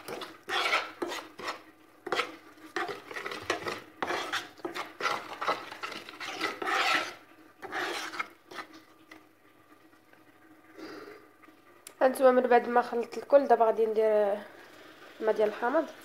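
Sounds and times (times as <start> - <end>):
metal spoon scraping a frying pan: 0.0 - 8.8.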